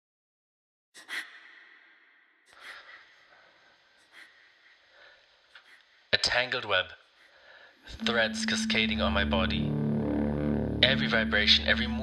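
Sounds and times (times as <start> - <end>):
person breathing: 2.5 - 5.9, 7.2 - 7.9.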